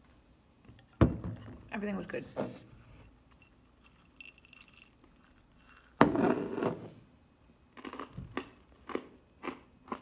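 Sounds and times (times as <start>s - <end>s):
nuts rattling in glass jar: 3.8s - 6.0s
chewing crunchy nuts: 7.7s - 10.0s.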